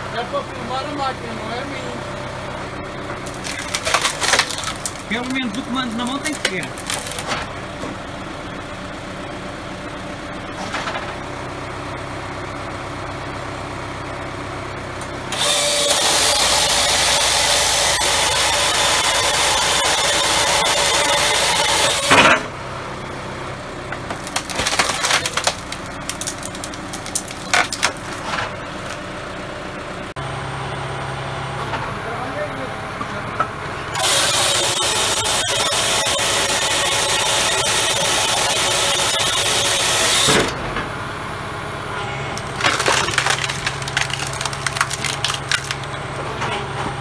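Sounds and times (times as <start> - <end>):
firewood processor humming: 0.0 - 47.0
wood cracking: 3.1 - 7.6, 23.9 - 29.1, 34.0 - 40.6, 42.3 - 46.3
saw cutting through log: 3.2 - 7.3, 15.3 - 22.4, 24.1 - 29.0, 33.9 - 40.6, 42.4 - 46.0
wood pieces clattering: 3.2 - 7.5, 24.1 - 29.0, 42.4 - 46.0.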